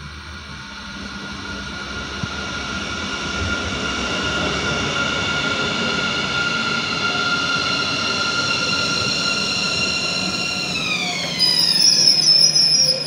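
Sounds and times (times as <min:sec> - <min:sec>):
electric train high whine: 0:00.0 - 0:13.0.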